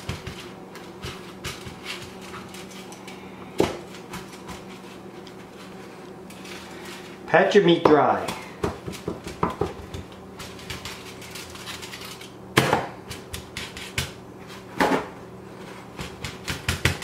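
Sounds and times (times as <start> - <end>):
faint steady hum: 0.0 - 17.0
hands patting meat: 7.9 - 11.2, 12.6 - 14.2, 15.9 - 17.0.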